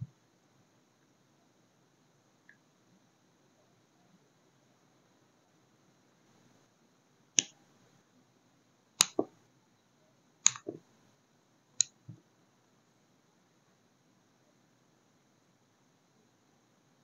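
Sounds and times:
sharp clicks on tabletop: 0:09.0 - 0:09.3, 0:10.5 - 0:10.8.

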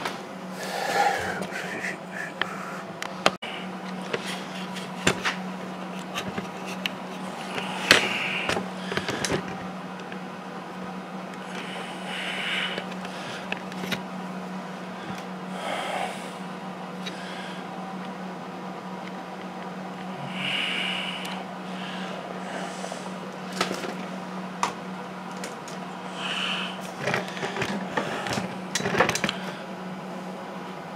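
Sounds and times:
low hum: 0:00.0 - 0:30.9.

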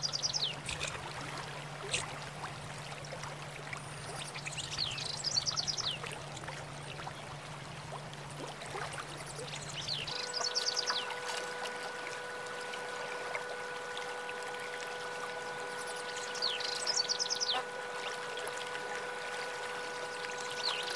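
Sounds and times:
sparrow twittering: 0:09.7 - 0:11.1, 0:15.8 - 0:17.7.

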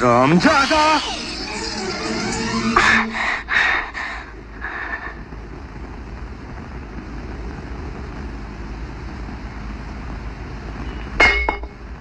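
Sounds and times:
low background rumble: 0:00.0 - 0:12.0
metallic clink: 0:11.2 - 0:11.8.

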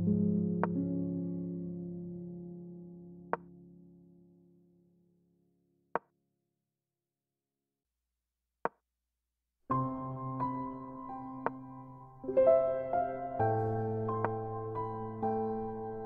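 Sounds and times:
soft background music: 0:09.7 - 0:16.0.

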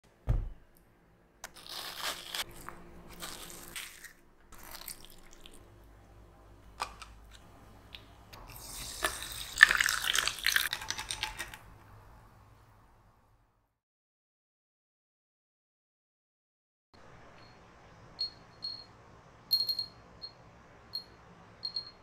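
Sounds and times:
low thump: 0:00.2 - 0:00.6
carbonated water fizzing in a glass: 0:08.6 - 0:11.6.

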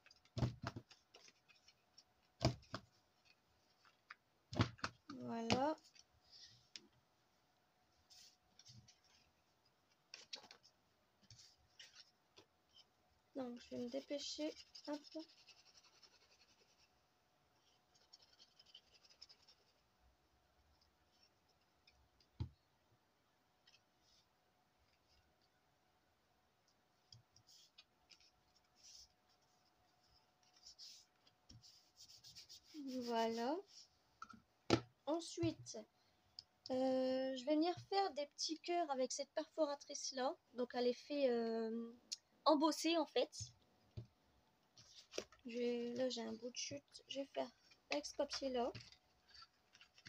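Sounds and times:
paper rustling: 0:47.6 - 0:50.0.

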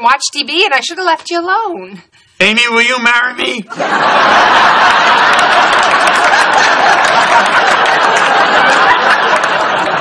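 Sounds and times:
audience laughing: 0:03.7 - 0:10.0
audience applauding: 0:03.9 - 0:10.0.

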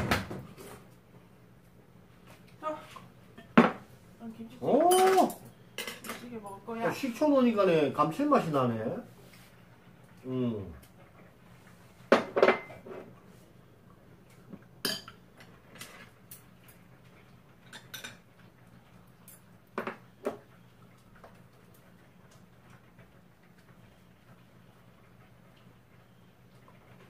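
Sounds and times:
utensils clinking against bowls: 0:04.7 - 0:06.6.

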